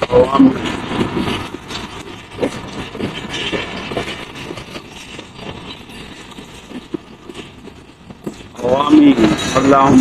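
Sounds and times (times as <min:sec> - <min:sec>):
train wheels rumbling on rails: 0:00.0 - 0:10.0
wheels clacking over rail joints: 0:00.0 - 0:10.0.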